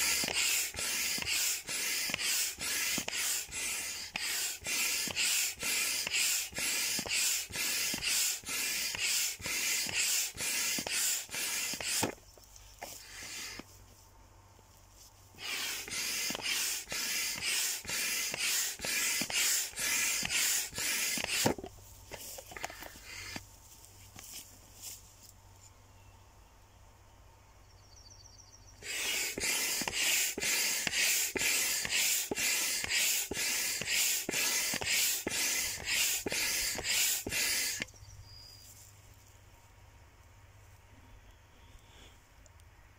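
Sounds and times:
hand pump air strokes: 0.0s - 13.7s, 15.4s - 23.5s, 28.8s - 37.9s.

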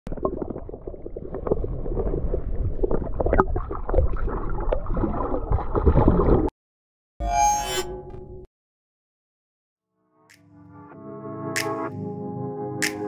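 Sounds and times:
underwater gurgling: 0.1s - 6.5s.

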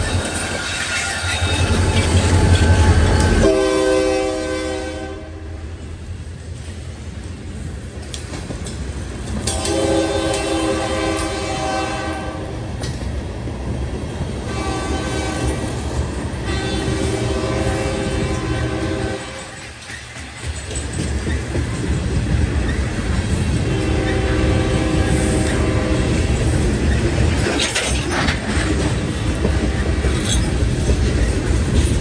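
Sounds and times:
diesel locomotive engine rumbling: 0.0s - 32.0s
train horn blasts: 2.6s - 5.6s, 9.4s - 12.6s, 14.5s - 15.8s, 16.4s - 19.6s, 23.6s - 26.4s
train wheels clattering: 6.5s - 11.9s, 14.1s - 32.0s.

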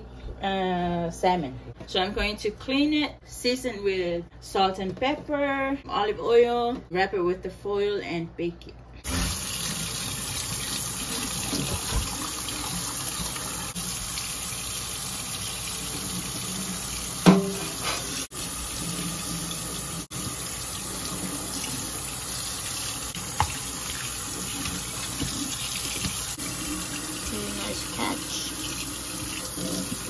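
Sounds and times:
faucet running into metal sink: 9.1s - 30.0s.

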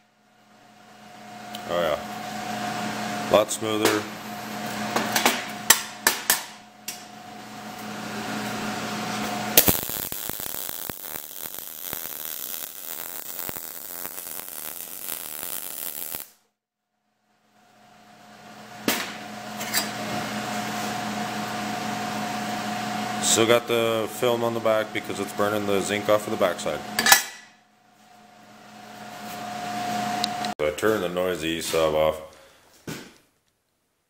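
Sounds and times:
welder arc crackling: 9.5s - 16.5s.

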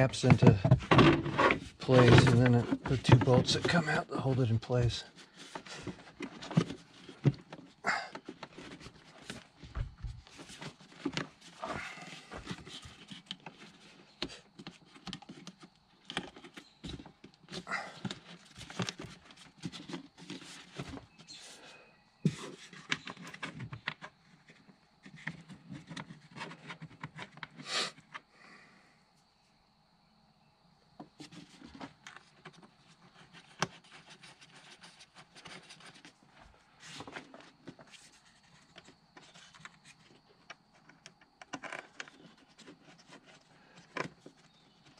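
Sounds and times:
plastic clicks and rubbing: 36.9s - 44.9s.

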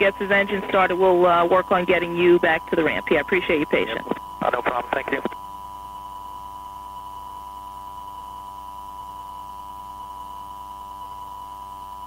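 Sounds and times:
steady electronic tone: 0.0s - 4.4s
low electrical hum: 0.0s - 12.0s.

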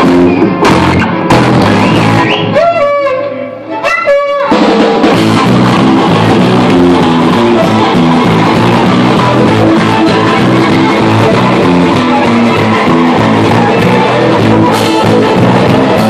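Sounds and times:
drum kit playing: 0.0s - 2.8s, 3.8s - 16.0s
bass: 0.0s - 16.0s
electric guitar: 0.0s - 16.0s
sliding pitch-bending line: 5.1s - 16.0s.

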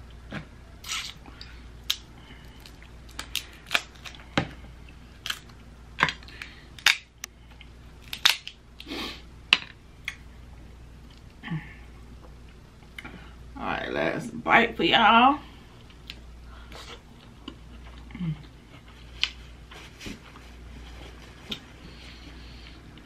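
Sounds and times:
crab shell cracking: 2.6s - 4.2s, 8.0s - 8.9s.

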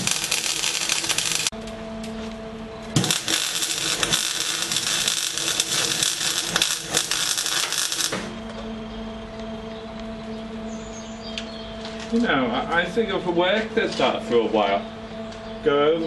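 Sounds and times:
welding arc crackling and hissing: 0.0s - 1.5s, 2.9s - 8.4s
steady hum: 0.0s - 16.0s.

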